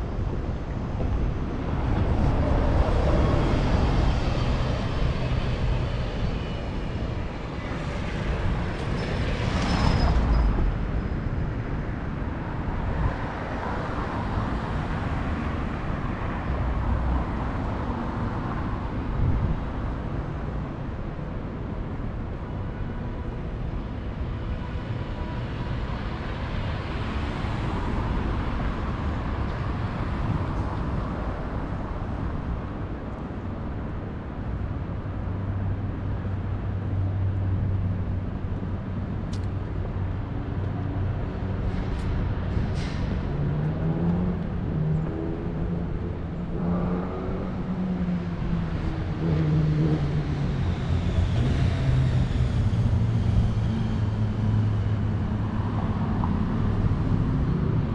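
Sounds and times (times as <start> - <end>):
low traffic rumble: 0.0 - 57.9
cars passing: 22.4 - 57.9.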